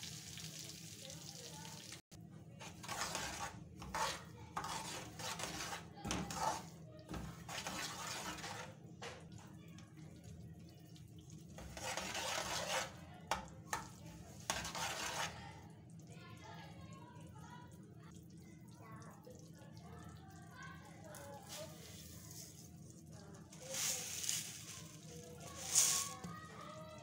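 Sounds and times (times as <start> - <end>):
ladle scraping a pan: 2.6 - 9.2, 11.5 - 15.6, 23.5 - 26.4.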